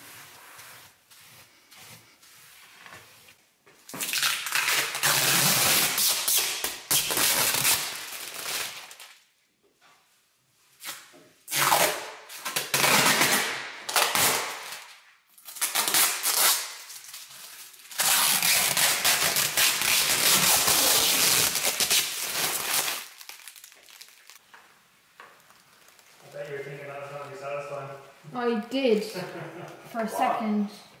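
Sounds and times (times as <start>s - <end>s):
plastic film peeling and crinkling: 2.6s - 9.3s, 10.8s - 27.6s.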